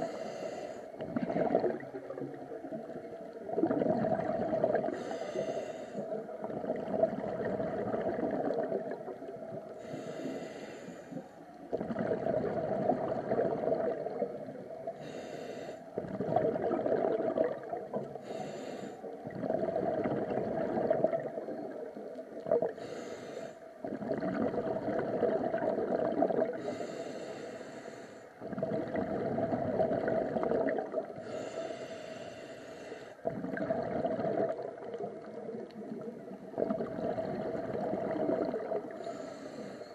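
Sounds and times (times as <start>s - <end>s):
regulator hiss on inhale: 0.0s - 1.0s, 4.8s - 6.3s, 9.7s - 11.5s, 14.8s - 16.0s, 18.0s - 19.2s, 22.6s - 23.8s, 26.5s - 28.6s, 31.1s - 33.3s, 38.4s - 39.9s
bubbling gurgle on exhale: 1.0s - 5.2s, 6.0s - 9.9s, 11.7s - 15.0s, 15.9s - 18.4s, 19.2s - 22.8s, 23.8s - 26.8s, 28.4s - 31.4s, 33.2s - 39.8s.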